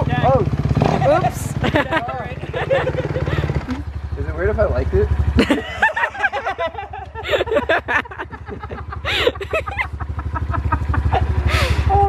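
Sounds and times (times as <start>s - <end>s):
dirt bike engines idling: 0.0s - 12.0s
people laughing: 1.5s - 3.7s, 5.4s - 12.0s.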